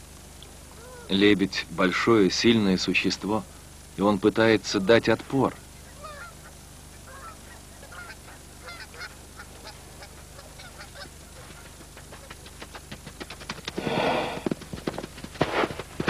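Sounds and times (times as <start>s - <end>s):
wings flapping: 7.1s - 16.0s.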